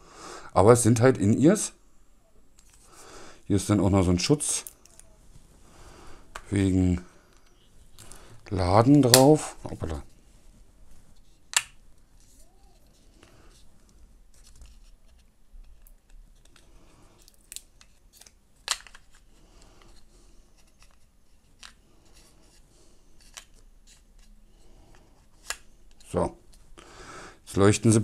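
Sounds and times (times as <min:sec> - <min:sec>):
faint rustling of film: 0:04.4 - 0:26.8.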